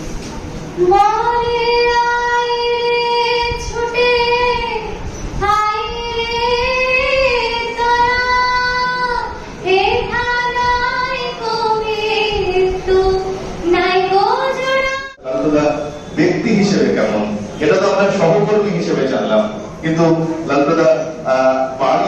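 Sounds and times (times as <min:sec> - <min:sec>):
girl singing unaccompanied: 0:00.8 - 0:15.2.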